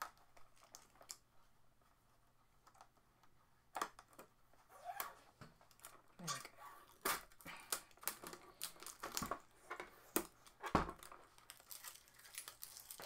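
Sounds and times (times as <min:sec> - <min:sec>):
packing tape peeling off plastic: 0:06.8 - 0:09.4, 0:10.1 - 0:13.0.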